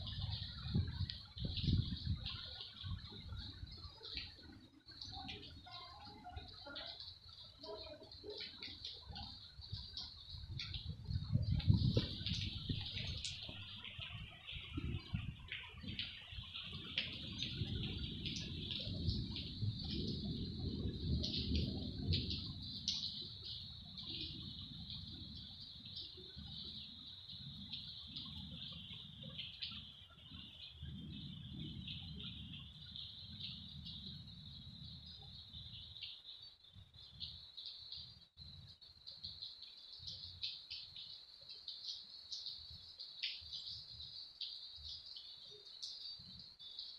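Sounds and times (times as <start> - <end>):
wind buffeting microphone: 0.0 - 6.4, 8.9 - 36.0.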